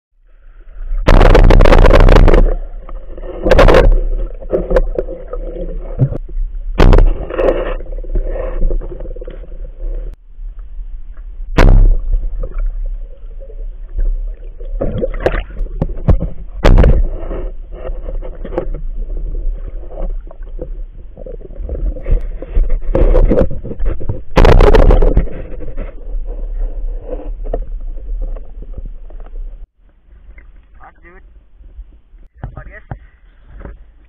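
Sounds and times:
steady underwater churning: 0.2 - 30.6
water rushing and gurgling underwater: 0.3 - 30.6
sharp knocks: 14.8 - 17.2.

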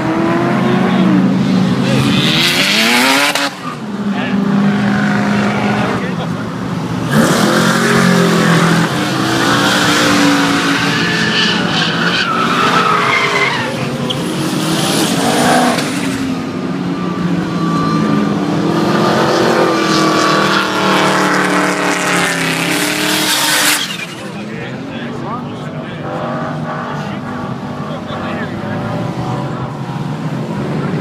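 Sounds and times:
car engine revving high: 0.0 - 24.3
tyres screeching on tarmac: 1.4 - 18.9, 19.6 - 24.9.

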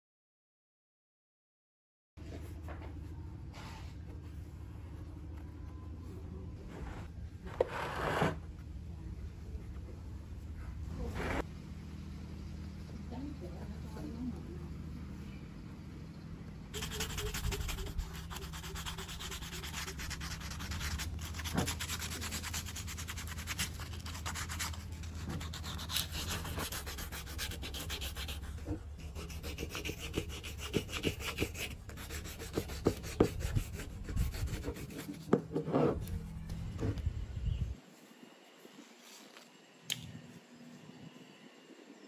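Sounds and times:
sandpaper scratching on plastic: 16.8 - 36.2.

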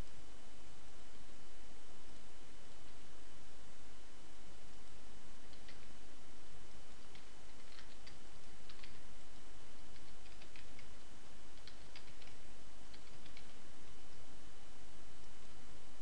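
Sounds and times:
steady background hiss: 0.0 - 16.0
keyboard and mouse clicks: 5.4 - 5.9, 7.0 - 9.0, 9.9 - 11.0, 11.6 - 13.6.

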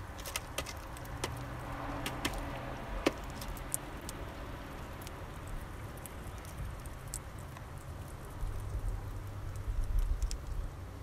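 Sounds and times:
bird cracking seeds: 0.0 - 4.3.

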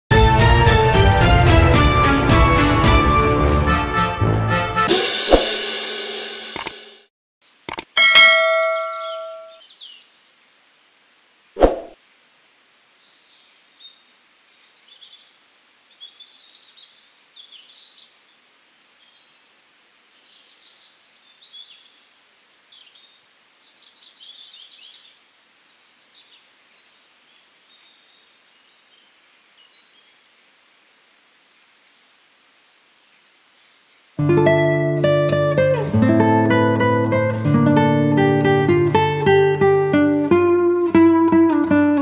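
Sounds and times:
faint steady hiss: 9.6 - 35.6
small birds chirping: 11.0 - 34.2
acoustic guitar music: 34.2 - 42.0.

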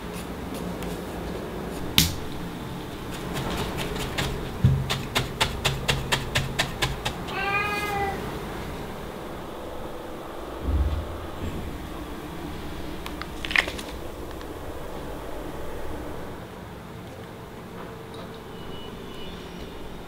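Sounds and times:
cat meowing: 7.3 - 8.3.

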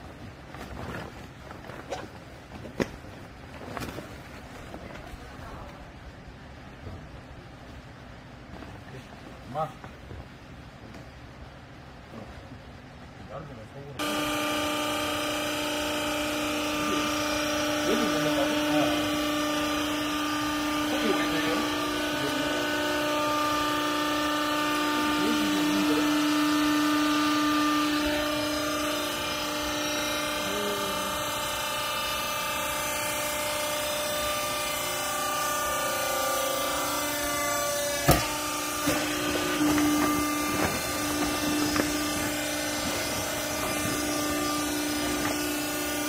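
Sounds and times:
hydraulic unit humming: 13.8 - 46.0.

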